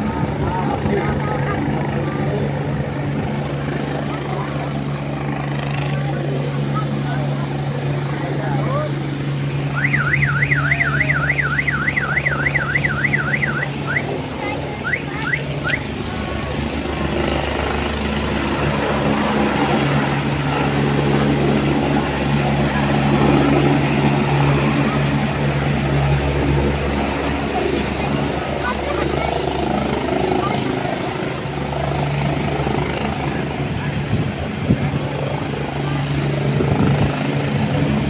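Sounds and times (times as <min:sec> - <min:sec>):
helicopter engine drone: 0:00.0 - 0:38.0
warbling electronic alarm: 0:09.7 - 0:14.2.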